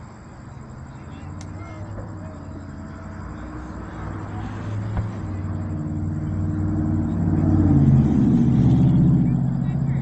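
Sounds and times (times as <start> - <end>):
vehicle engine running: 0.0 - 10.0.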